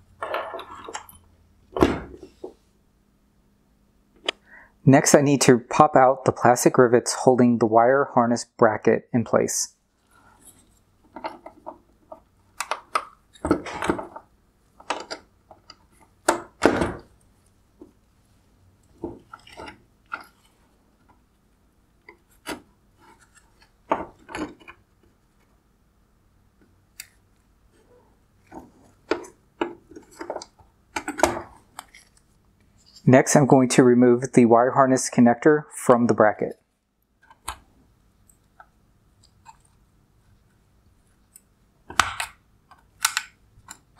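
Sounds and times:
plastic clicks and snaps: 41.3s - 43.9s.

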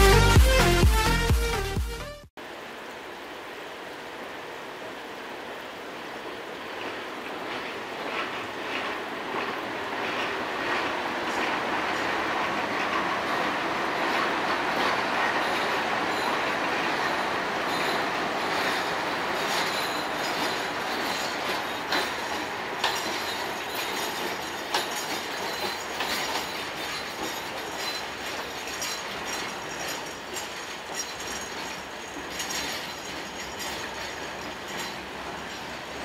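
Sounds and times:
train wheels rumbling on rail: 5.3s - 36.0s
wheels clicking over rail joints: 6.0s - 36.0s
wheel squeal: 10.0s - 36.0s.

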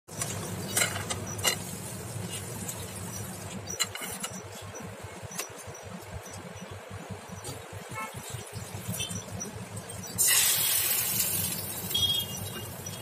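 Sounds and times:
metal spatula scraping frying pan: 0.6s - 3.0s.

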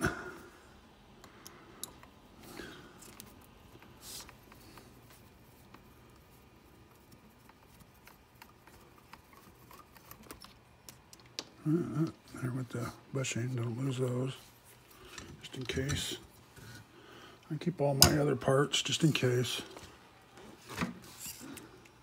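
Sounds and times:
small parts being handled: 2.9s - 12.2s.

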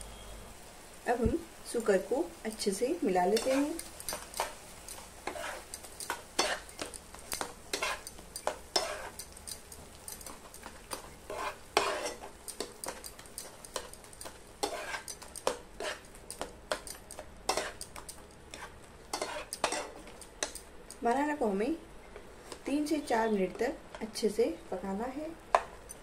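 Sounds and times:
light sizzle: 0.0s - 26.0s
metal spatula scraping frying pan: 3.3s - 17.9s, 18.5s - 20.6s.

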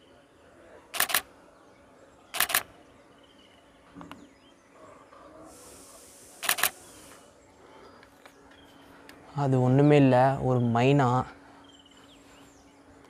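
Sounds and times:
camera shutter clicks: 1.0s - 1.3s, 2.4s - 2.7s, 6.4s - 6.8s.

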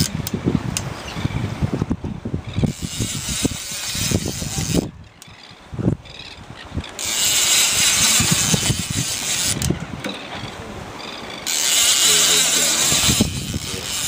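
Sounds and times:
fishing reel clicking and rattling: 2.7s - 5.5s, 6.3s - 9.8s, 11.4s - 14.0s.

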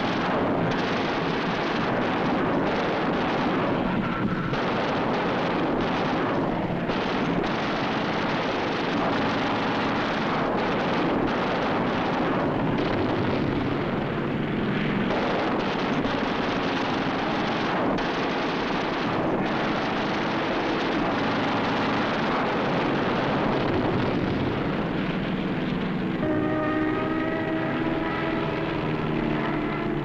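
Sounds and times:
machine-gun fire: 0.0s - 14.0s, 15.0s - 25.0s
fighter aircraft engines roaring: 0.0s - 30.0s.

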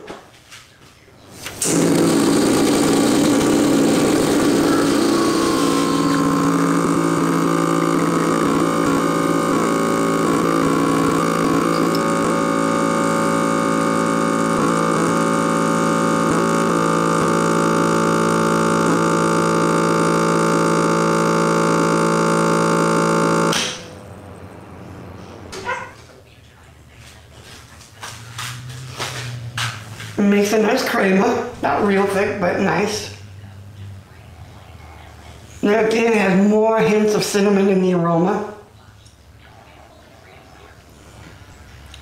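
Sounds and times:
espresso machine pump buzzing: 1.4s - 25.9s.

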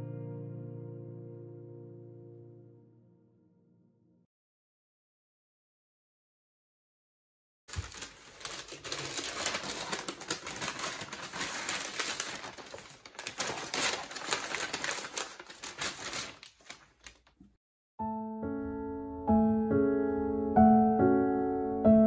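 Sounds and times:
paper bag rustling and crinkling: 7.7s - 17.6s.

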